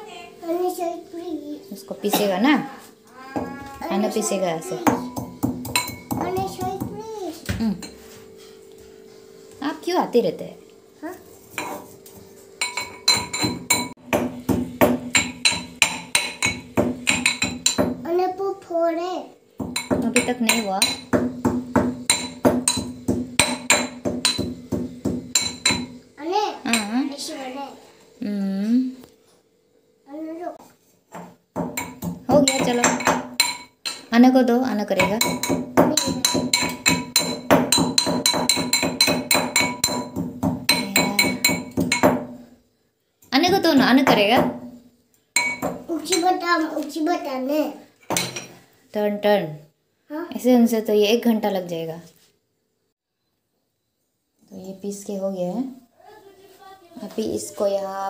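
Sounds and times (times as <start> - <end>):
pestle pounding in a mortar: 4.9 - 7.0, 12.6 - 18.0, 19.6 - 26.0, 31.1 - 34.0, 35.0 - 42.4, 43.5 - 44.7, 45.4 - 45.9.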